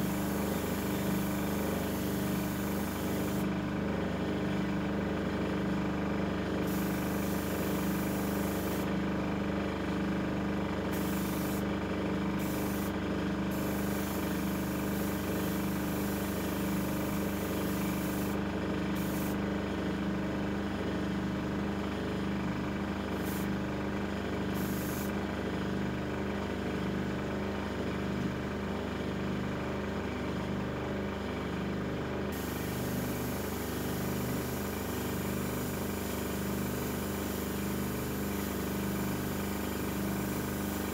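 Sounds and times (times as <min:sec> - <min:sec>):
airbrush hissing: 0:00.0 - 0:03.4, 0:06.6 - 0:08.9, 0:11.0 - 0:11.6, 0:12.4 - 0:12.9, 0:13.5 - 0:18.4, 0:19.0 - 0:19.4, 0:24.6 - 0:25.1, 0:32.4 - 0:35.8
air compressor humming: 0:00.0 - 0:09.2, 0:10.7 - 0:19.8, 0:22.5 - 0:25.6, 0:32.2 - 0:40.9.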